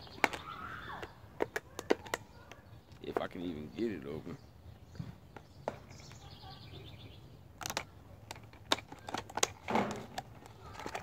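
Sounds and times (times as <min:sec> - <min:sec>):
bird chirping: 0:00.0 - 0:08.3
plastic packaging clicks and crackles: 0:07.6 - 0:11.0.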